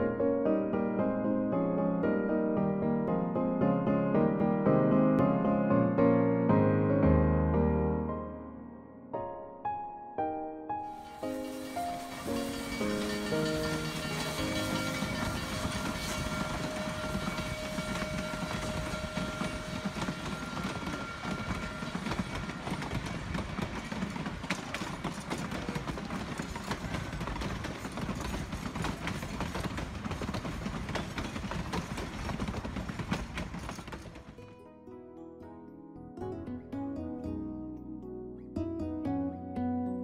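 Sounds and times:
train cars rumbling: 10.9s - 34.4s
wheel clicks over rail joints: 11.0s - 34.5s.

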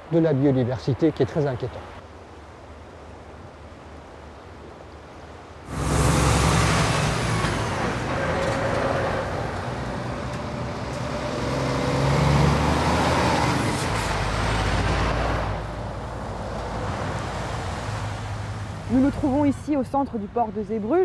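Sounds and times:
tyre and road noise: 5.6s - 21.0s
lorry diesel engines passing: 5.7s - 21.0s.

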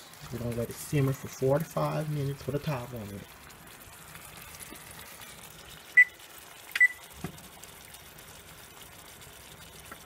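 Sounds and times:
high control panel beeps: 6.0s - 6.2s, 6.8s - 7.0s.

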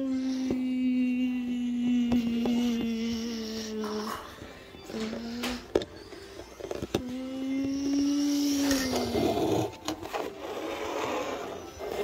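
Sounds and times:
person humming engine drone: 0.0s - 4.3s, 6.9s - 9.7s.

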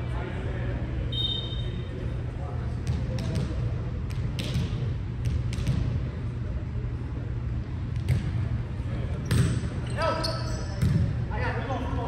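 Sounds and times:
low rumble of the hall: 0.0s - 12.0s
volleyball impacts: 2.8s - 6.0s, 9.2s - 9.7s, 10.7s - 11.2s.

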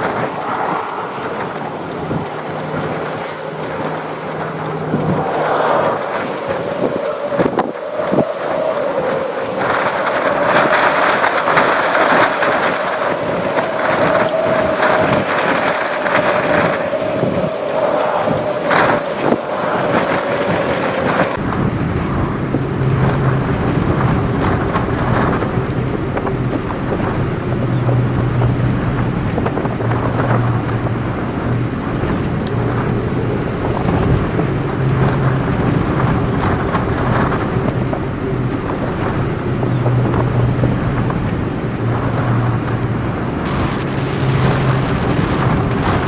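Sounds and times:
cars driving by: 0.0s - 46.0s
wind on microphone: 0.0s - 46.0s
low steady hum: 16.8s - 46.0s.

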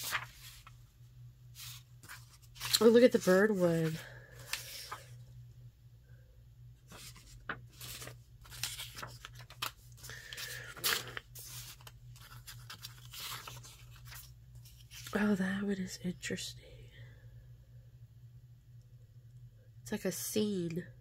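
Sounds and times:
paper sheets rustling and sliding: 0.0s - 0.8s, 1.5s - 5.2s, 6.9s - 15.2s
low steady hum: 0.0s - 21.0s.

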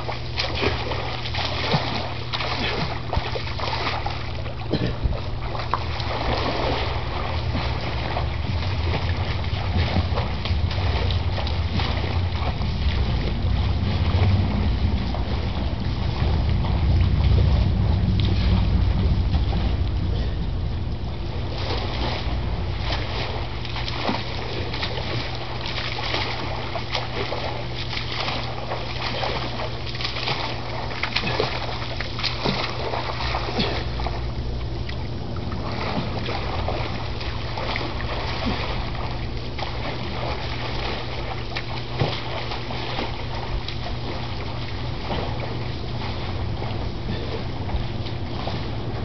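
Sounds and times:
low hum: 0.0s - 49.0s
water splashing and sloshing: 0.0s - 49.0s
wind rumble: 6.2s - 23.7s.

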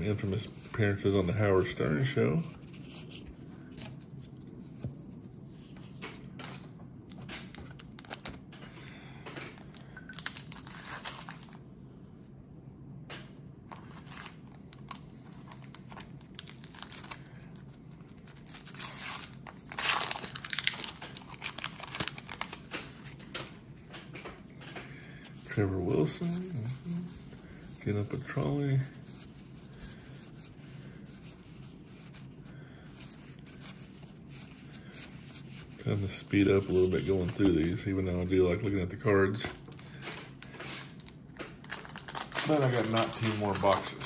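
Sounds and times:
paper wrapper tearing and crinkling: 10.2s - 11.6s, 13.7s - 23.2s, 39.5s - 44.0s.

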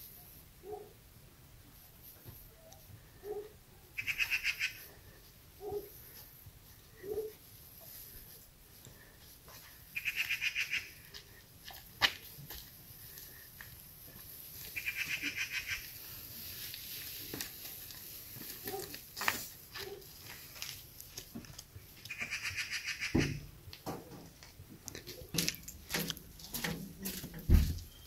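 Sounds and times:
rapidly pulsing animal calls: 4.0s - 4.8s, 10.0s - 11.0s, 14.8s - 15.9s, 22.1s - 23.4s
footsteps: 5.2s - 10.4s, 11.0s - 22.4s, 23.2s - 28.0s
dry sticks knocking and rustling: 23.7s - 28.0s.

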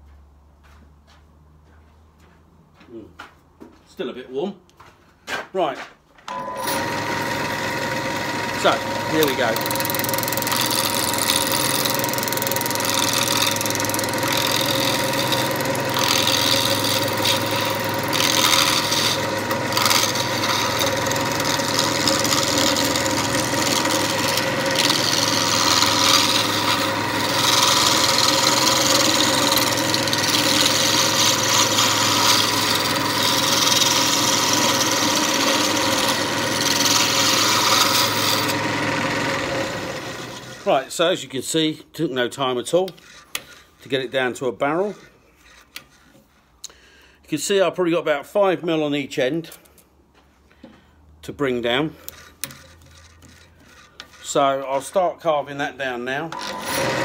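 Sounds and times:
chisel scraping spinning wood: 6.3s - 40.8s, 42.2s - 46.6s, 51.5s - 57.0s
wood lathe motor hum: 6.3s - 40.8s, 44.8s - 46.2s, 51.9s - 55.0s, 56.2s - 57.0s.

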